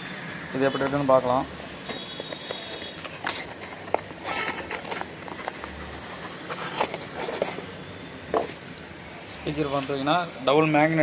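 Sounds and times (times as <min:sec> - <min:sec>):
cardboard rustling and scraping: 0:02.2 - 0:08.6.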